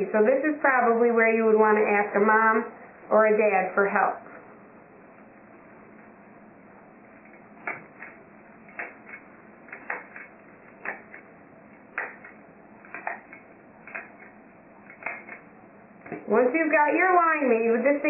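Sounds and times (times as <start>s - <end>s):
hand stapler clicks: 7.6s - 11.2s, 11.9s - 14.3s, 14.9s - 15.4s.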